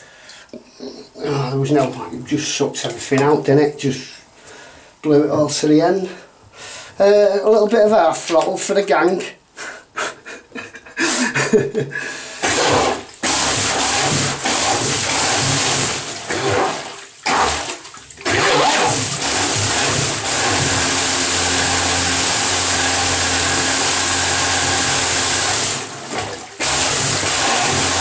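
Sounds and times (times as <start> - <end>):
electric motor humming: 12.4 - 16.6, 18.3 - 28.0
water jet churning and splashing: 12.4 - 28.0.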